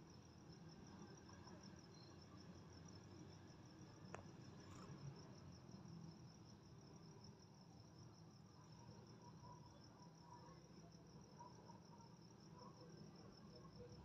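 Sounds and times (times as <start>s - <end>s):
faint cricket chirping: 0.0s - 14.0s.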